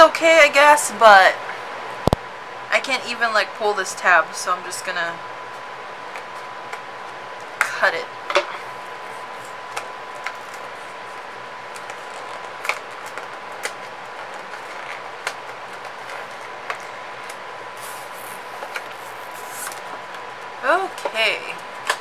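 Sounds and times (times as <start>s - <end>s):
cardboard rustling: 8.9s - 20.0s
steady hiss: 16.8s - 19.9s.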